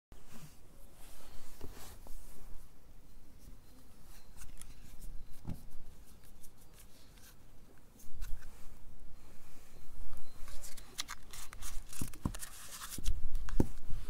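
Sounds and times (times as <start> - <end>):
paper wrapper crinkling: 10.5 - 13.5.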